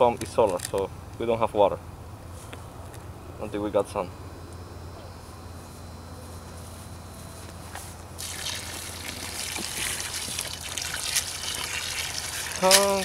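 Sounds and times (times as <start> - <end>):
water splashing from garden hose: 8.2 - 13.0.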